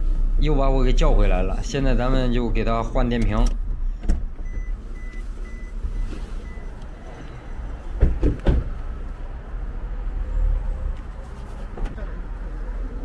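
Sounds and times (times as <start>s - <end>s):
car rumbling inside cabin: 0.0s - 13.0s
sharp knocks: 8.0s - 8.8s.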